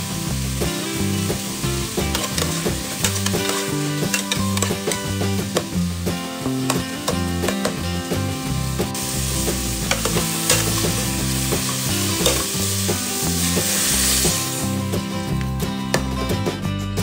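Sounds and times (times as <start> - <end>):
onions and tomatoes sizzling: 0.0 - 16.4
metal spoon clicking against pot: 2.2 - 5.0.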